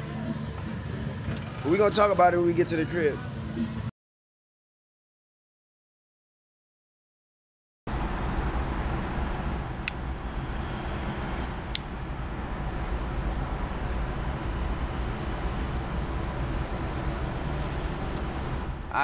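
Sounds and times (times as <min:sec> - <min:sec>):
city traffic rumble: 0:00.0 - 0:03.9, 0:07.9 - 0:19.0.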